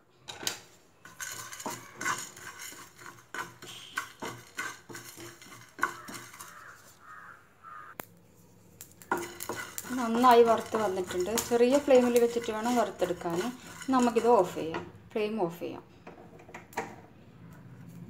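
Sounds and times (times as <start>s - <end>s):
seeds rattling in pan: 1.0s - 7.1s, 8.6s - 14.8s
spatula scraping frying pan: 1.0s - 7.3s, 9.0s - 15.0s.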